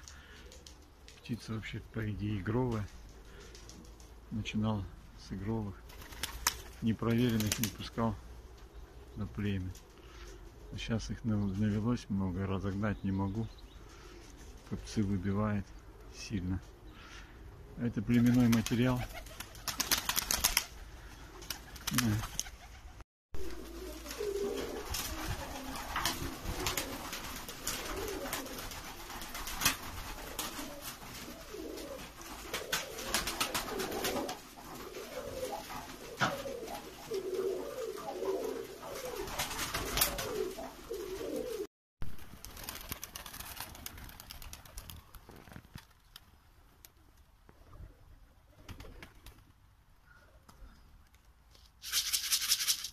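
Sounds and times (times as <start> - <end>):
pigeons cooing: 19.1 - 41.7.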